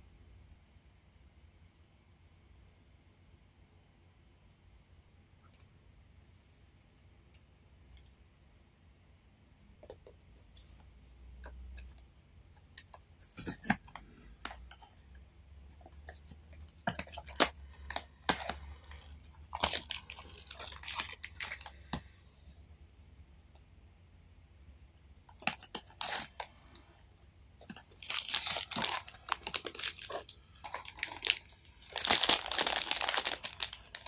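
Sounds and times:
cardboard and plastic wrap crackling: 0:15.8 - 0:22.0, 0:25.3 - 0:26.6, 0:27.6 - 0:34.0.

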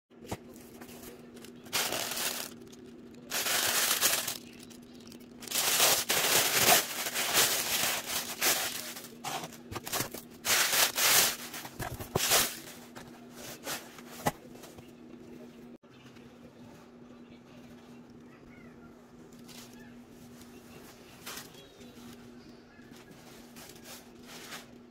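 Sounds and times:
tissue paper rustling: 0:00.6 - 0:04.7, 0:05.4 - 0:14.4.

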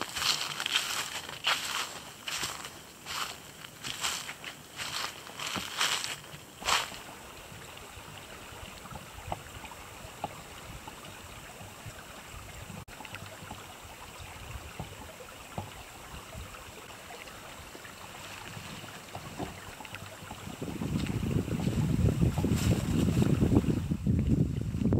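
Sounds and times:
steady hiss: 0:00.0 - 0:12.8
wind rumbling on microphone: 0:04.8 - 0:24.9.

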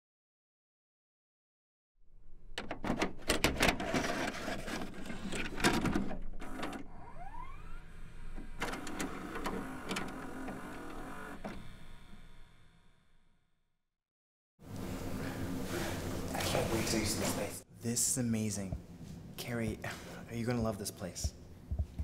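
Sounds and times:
video cassette recorder clicks and clunks: 0:08.3 - 0:11.7.

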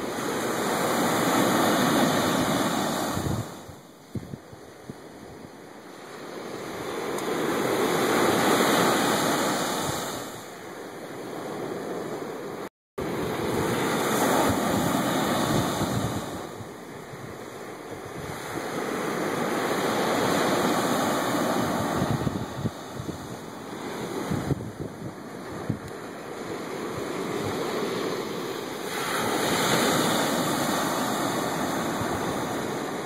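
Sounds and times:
ocean surf breaking on beach: 0:00.0 - 0:33.0
wind buffeting microphone: 0:00.2 - 0:05.6, 0:13.0 - 0:33.0.

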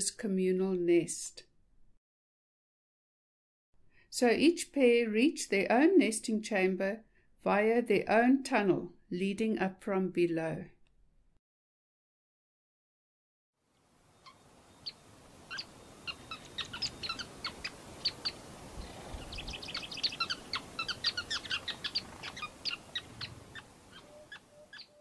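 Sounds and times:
birds chirping rapidly: 0:14.1 - 0:25.0.

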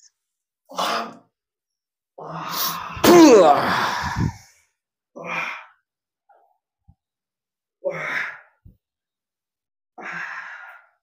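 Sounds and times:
man's pained exhalations: 0:03.0 - 0:04.3.

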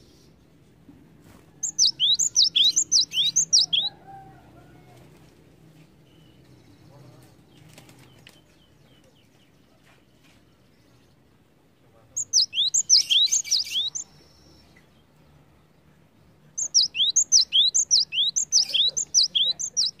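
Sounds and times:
bird singing whistled notes: 0:01.6 - 0:04.0, 0:12.2 - 0:14.8, 0:16.6 - 0:20.0.

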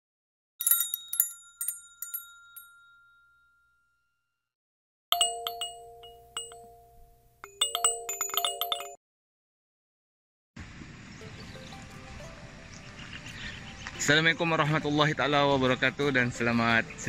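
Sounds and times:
tinkling chime hits: 0:00.6 - 0:03.9, 0:05.2 - 0:09.0.

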